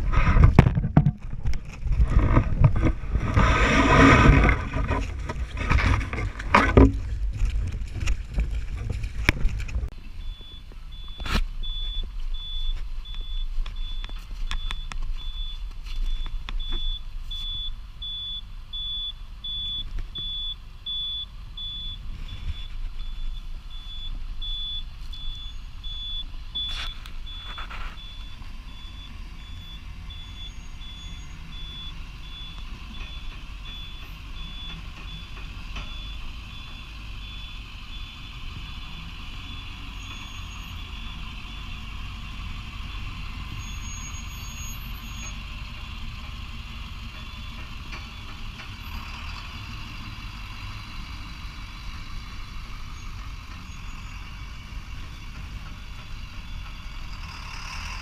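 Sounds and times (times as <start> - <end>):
large vehicle engine running: 0.0 - 58.0.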